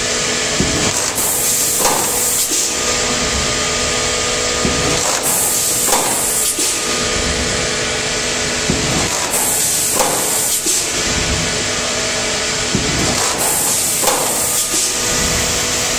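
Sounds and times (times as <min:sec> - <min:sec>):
machine hum and hiss: 0:00.0 - 0:15.9
machine knocks: 0:00.5 - 0:03.7, 0:04.6 - 0:07.5, 0:08.6 - 0:11.8, 0:12.6 - 0:15.5
bursts of hissing air: 0:01.0 - 0:02.8, 0:05.0 - 0:06.8, 0:09.1 - 0:11.0, 0:13.2 - 0:15.9.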